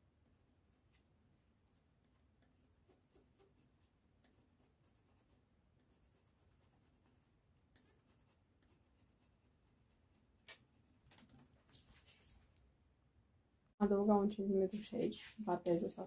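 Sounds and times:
pencil scratching on paper: 2.0s - 10.4s.

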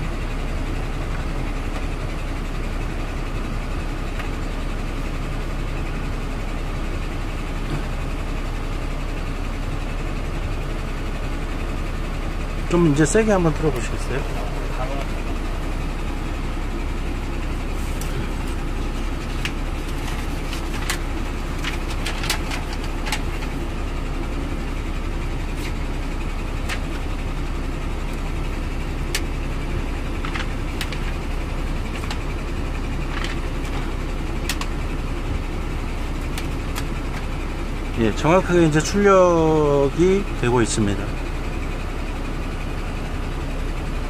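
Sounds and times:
air purifier fan rushing: 0.0s - 44.0s
steady low hum: 0.0s - 44.0s
paper fluttering and crackling: 17.8s - 23.7s, 30.2s - 32.4s.

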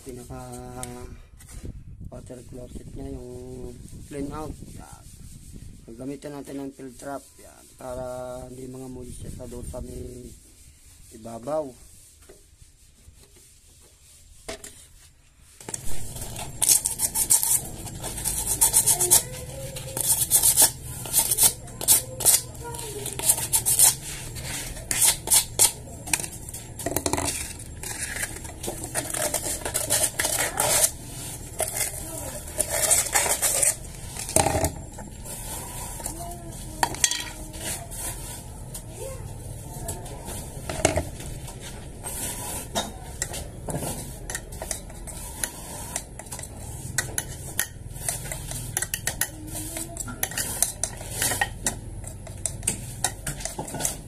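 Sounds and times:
hard objects clinking and clattering: 15.6s - 38.4s, 39.9s - 54.0s.

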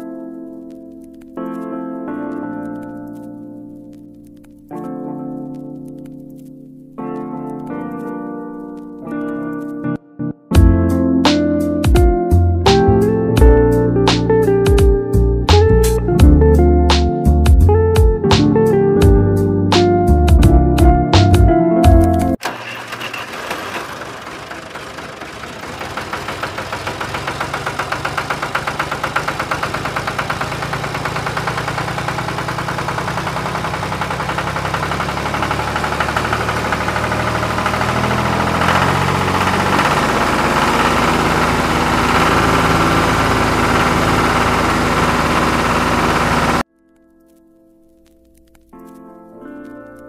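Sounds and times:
tractor diesel engine knocking: 22.4s - 46.6s.

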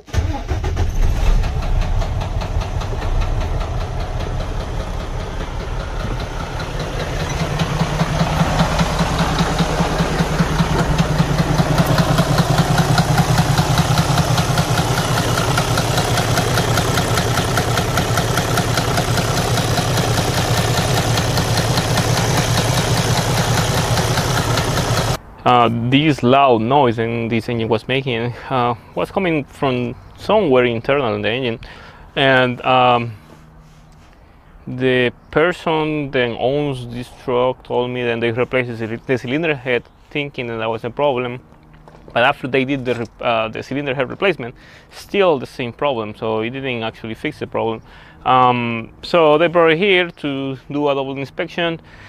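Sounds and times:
diesel engine idling with knocking clatter: 0.1s - 25.2s.

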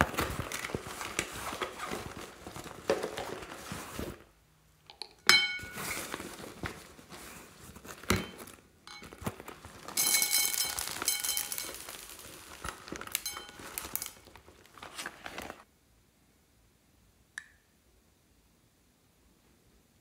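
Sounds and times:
case rustling and crinkling: 0.0s - 4.3s, 5.6s - 15.7s.

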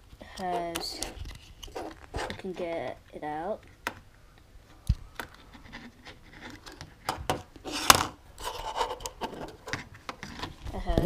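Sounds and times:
camera handling rustling: 0.4s - 2.8s.

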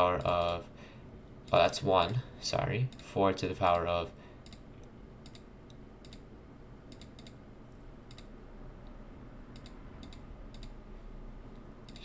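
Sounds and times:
faint low hum: 0.0s - 12.0s
computer mouse clicking: 0.2s - 0.6s, 4.4s - 6.2s, 6.9s - 7.4s, 8.1s - 8.3s, 9.5s - 10.8s.

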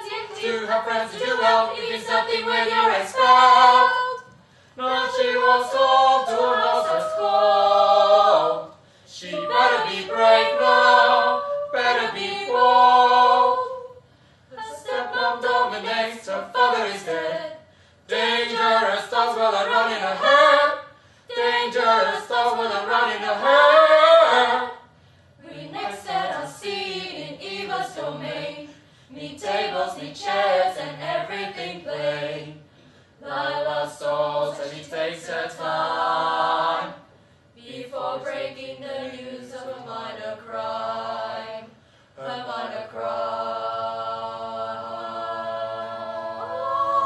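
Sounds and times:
vocal group singing in harmony: 0.0s - 47.0s
singers breathing: 4.3s - 4.8s, 8.7s - 9.2s, 14.0s - 14.6s, 17.6s - 18.1s, 20.9s - 21.3s, 24.9s - 25.4s, 28.7s - 29.2s, 32.7s - 33.2s, 37.1s - 37.6s, 41.7s - 42.2s.

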